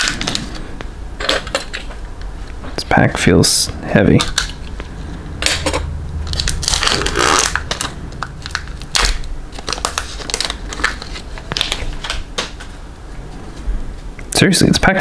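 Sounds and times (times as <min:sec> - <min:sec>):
wrapper rustling and crackling: 0:05.4 - 0:12.7.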